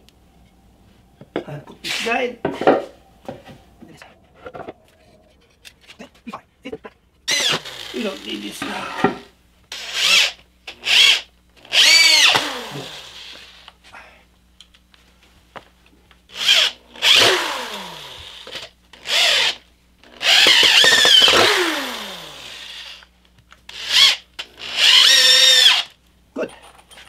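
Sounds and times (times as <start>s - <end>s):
electric drill driving screws into wood: 7.3s - 13.7s, 16.3s - 23.1s, 23.7s - 26.0s.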